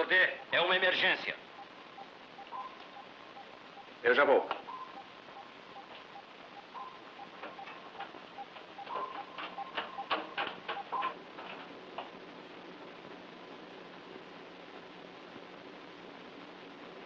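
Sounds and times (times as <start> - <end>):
soft electronic ticking pulse: 0.0 - 11.2
steady beep tone: 0.0 - 11.2
faint low hum: 0.0 - 17.0.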